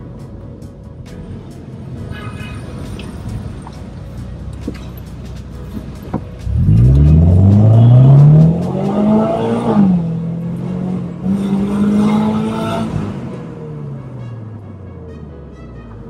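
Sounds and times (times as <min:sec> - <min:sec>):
car engine accelerating hard: 0:05.8 - 0:13.9.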